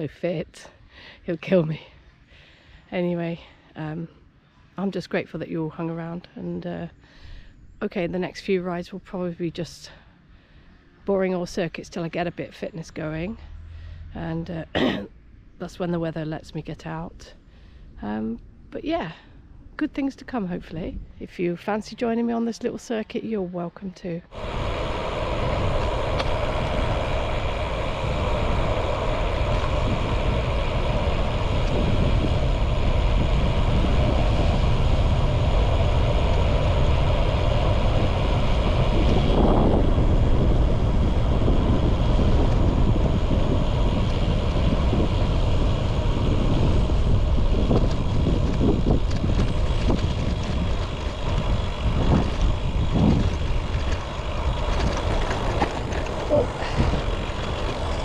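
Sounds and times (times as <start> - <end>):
bicycle tyre road noise: 24.3 - 58.0
wind on microphone: 24.3 - 58.0
bicycle rattles: 25.8 - 58.0.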